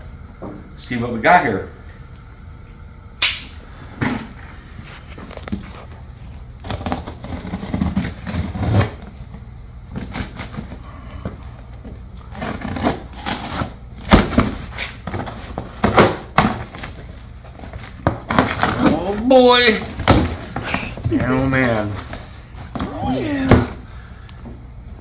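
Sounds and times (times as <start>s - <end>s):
sharp snaps: 3.2s - 3.6s
blade slicing tape and cardboard: 6.6s - 9.1s, 12.3s - 19.0s
cardboard flaps rustling: 11.8s - 23.9s.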